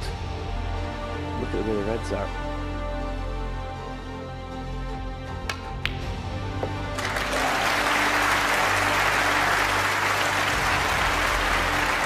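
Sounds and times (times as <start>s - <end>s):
background music: 0.0s - 12.0s
crowd applauding: 6.9s - 12.0s.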